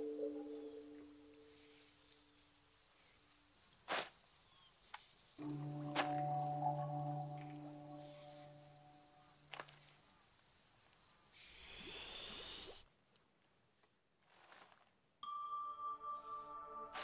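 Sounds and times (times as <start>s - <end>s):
cricket chirping: 0.0s - 12.8s.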